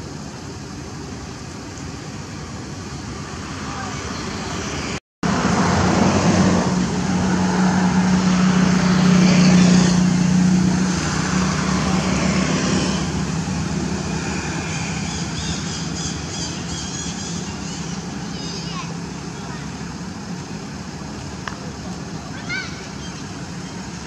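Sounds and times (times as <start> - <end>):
vehicle passing by: 3.2 - 20.3.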